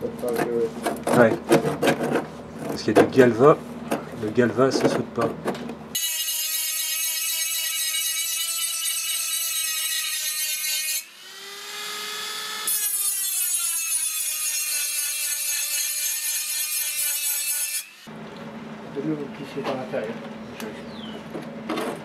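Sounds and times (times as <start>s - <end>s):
rotary tool grinding metal: 5.9s - 18.1s.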